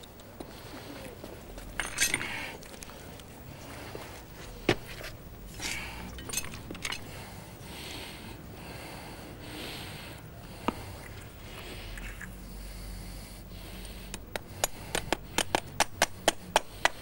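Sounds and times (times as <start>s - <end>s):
soft breathing: 0.4s - 15.8s
hammer tapping horseshoe nails: 14.1s - 17.0s.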